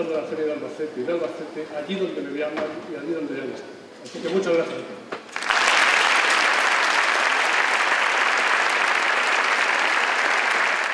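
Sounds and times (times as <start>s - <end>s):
audience applauding: 5.3s - 10.9s.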